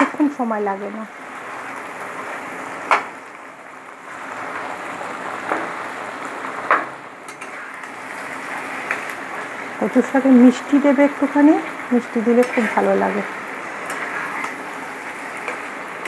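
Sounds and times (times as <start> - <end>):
food sizzling in oil: 0.0 - 16.0
spatula scraping and knocking pan: 12.2 - 16.0.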